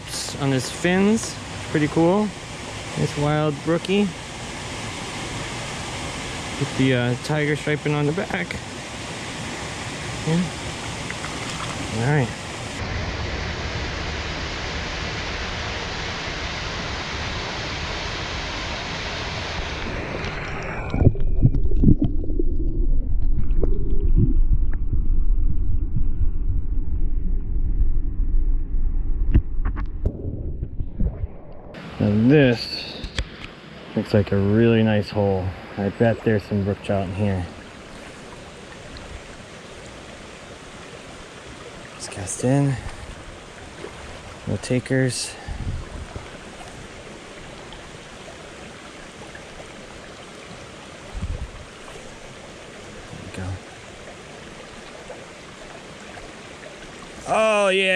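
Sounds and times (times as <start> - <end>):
muffled underwater water rushing: 0.0 - 57.9
brook rushing over stones: 9.2 - 12.8
low thump: 20.9 - 31.8.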